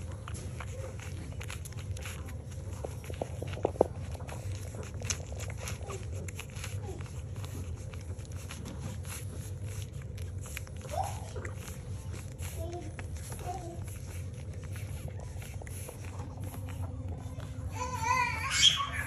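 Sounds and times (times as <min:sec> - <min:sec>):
puppies suckling: 0:00.0 - 0:19.0
puppy squeak: 0:17.9 - 0:19.0.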